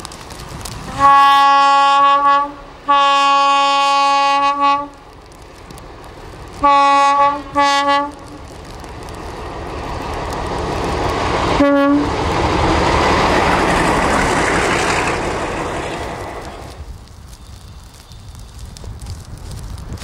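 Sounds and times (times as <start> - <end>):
train horn blast: 0.8 - 5.0, 6.6 - 8.4, 11.6 - 12.2
locomotive rushing past: 5.8 - 17.1.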